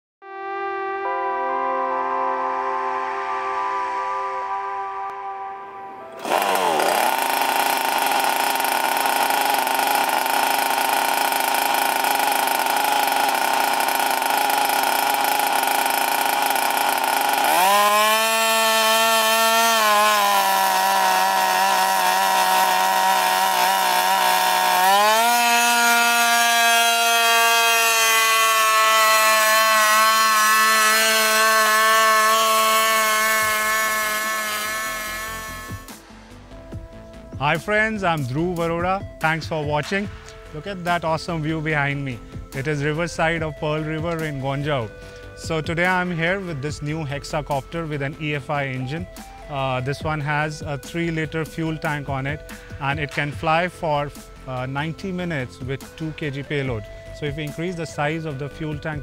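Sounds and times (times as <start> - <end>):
drone engine and rotors droning: 6.1 - 37.6.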